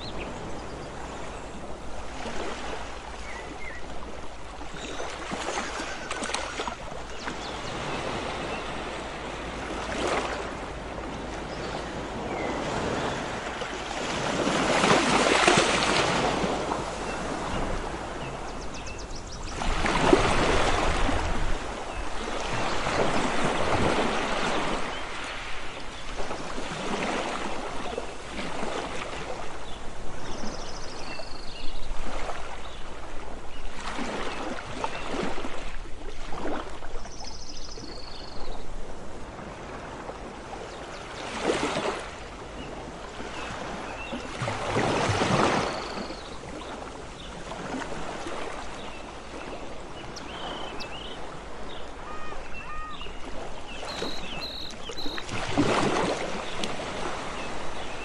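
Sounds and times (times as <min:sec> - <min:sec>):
sea waves washing onto beach: 0:00.0 - 0:18.8, 0:38.6 - 0:58.0.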